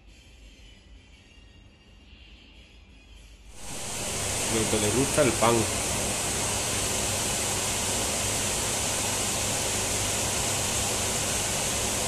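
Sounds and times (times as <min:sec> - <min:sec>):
steady hiss: 0:03.5 - 0:12.0.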